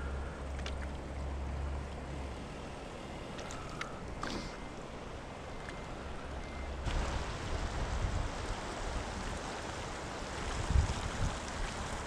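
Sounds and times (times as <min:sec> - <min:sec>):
river rushing over rocks: 0:06.9 - 0:12.0.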